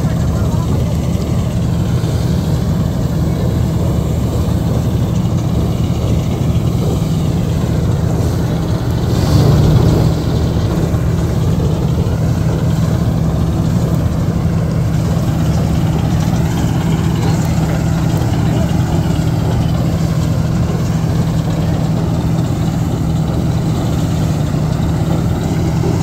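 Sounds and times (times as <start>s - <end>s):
combine harvester engine droning: 0.0s - 26.0s.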